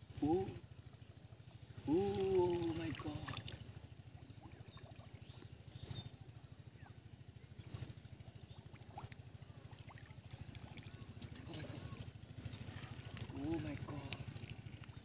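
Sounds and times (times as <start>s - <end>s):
bird chirps: 0.0s - 0.6s, 1.4s - 8.7s, 10.8s - 13.6s
low pulsing drone: 0.0s - 15.0s
water trickling and splashing: 1.2s - 15.0s.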